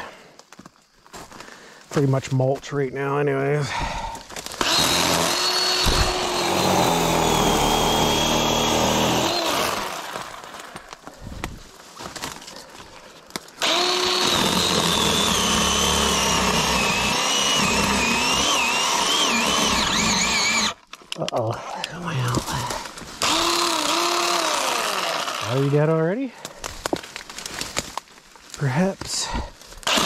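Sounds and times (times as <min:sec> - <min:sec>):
battery chainsaw whining: 0:03.8 - 0:11.4, 0:13.6 - 0:20.8, 0:22.2 - 0:26.2.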